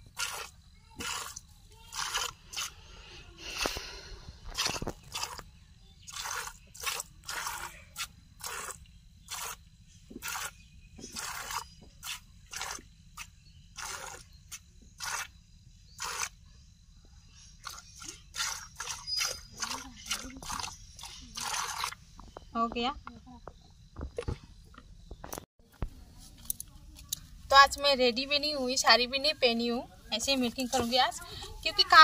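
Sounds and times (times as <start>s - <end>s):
milk squirting into plastic bucket: 0.1s - 2.8s, 4.5s - 5.4s, 6.1s - 7.7s, 10.2s - 14.2s, 15.0s - 15.3s, 16.0s - 16.3s, 17.6s - 22.0s.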